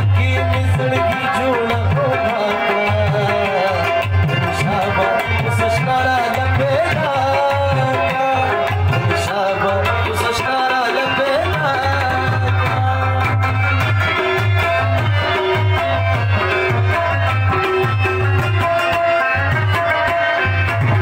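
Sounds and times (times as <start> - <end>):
harmonium melody: 0.0 - 21.0
tabla drum strokes: 0.0 - 21.0.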